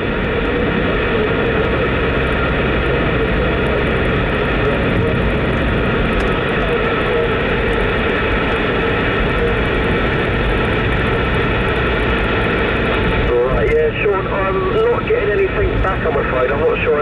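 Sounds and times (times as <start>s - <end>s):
car road noise: 0.0s - 17.0s
radio static hiss: 0.2s - 17.0s.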